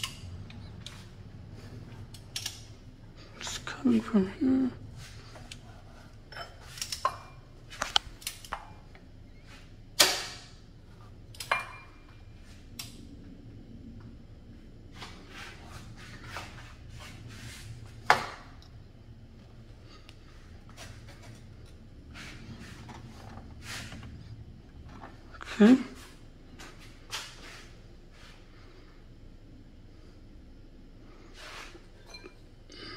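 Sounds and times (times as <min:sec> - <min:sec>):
low steady hum: 0:00.0 - 0:32.9
metallic clicks and clanks: 0:02.1 - 0:02.7.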